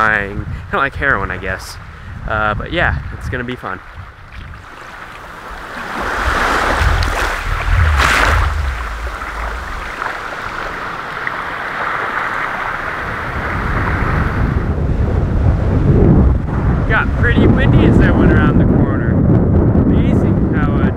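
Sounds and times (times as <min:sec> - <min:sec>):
wind rumble on microphone: 0:00.0 - 0:20.9
small waves lapping on sand: 0:03.8 - 0:14.4.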